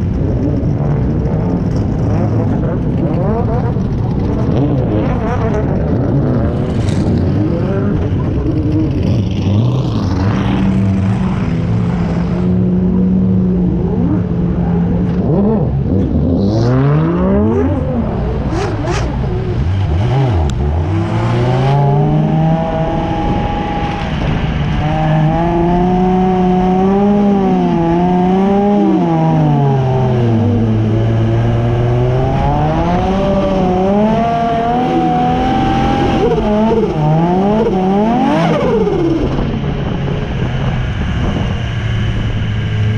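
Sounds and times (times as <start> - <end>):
car engine revving hard: 15.0 - 42.9.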